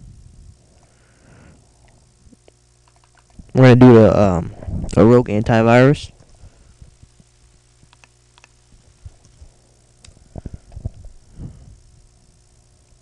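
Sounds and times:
steady low hum: 0.0 - 13.0
keyboard and mouse clicks: 7.9 - 8.6.

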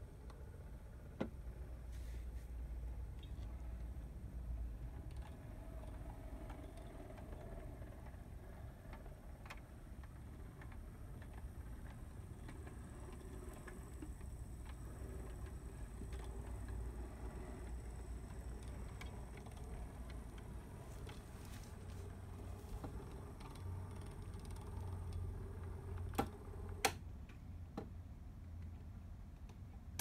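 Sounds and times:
model locomotive motor hum: 1.9 - 26.9
wheels clicking over rail joints: 5.0 - 26.9.

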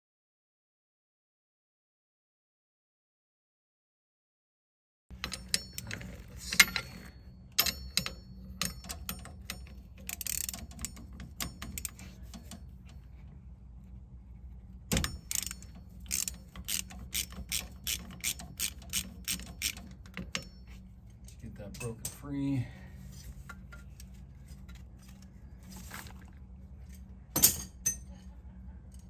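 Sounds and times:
ratchet wrench clicking: 5.2 - 12.6, 15.0 - 20.6.

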